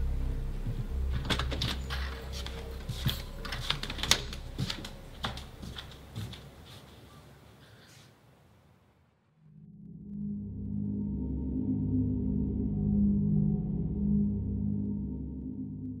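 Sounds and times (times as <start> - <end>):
low music drone: 0.0 - 6.0, 9.5 - 16.0.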